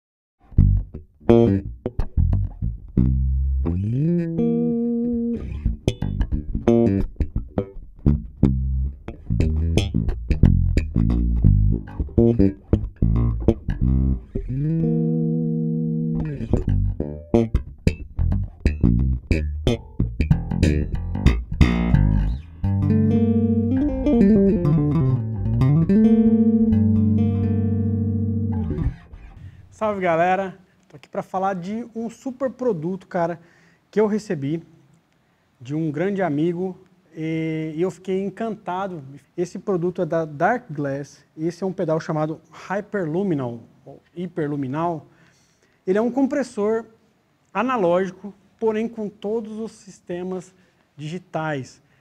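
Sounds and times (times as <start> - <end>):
electric bass guitar plucked: 0.4 - 29.8.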